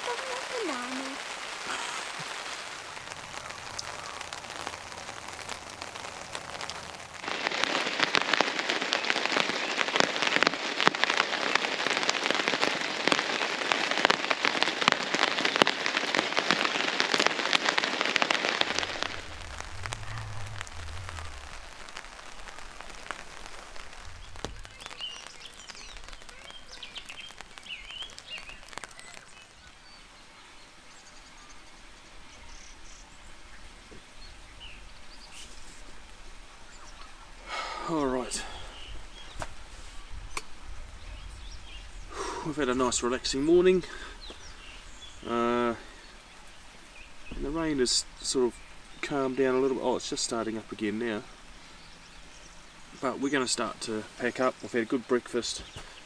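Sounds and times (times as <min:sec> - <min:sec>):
rain pattering on a tarp: 0:00.0 - 0:56.0.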